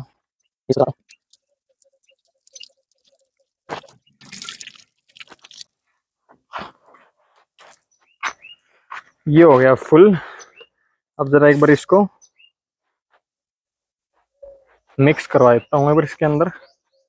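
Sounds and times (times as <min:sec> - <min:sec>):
water splashing into plastic bottle: 0:01.0 - 0:05.7.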